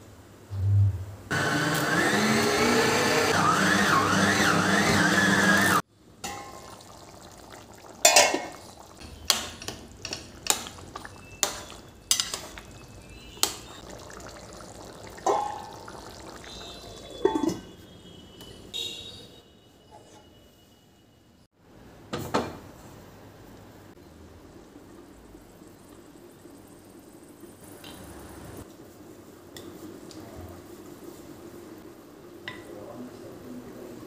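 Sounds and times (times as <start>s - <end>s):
stand mixer motor whining: 1.3s - 5.8s.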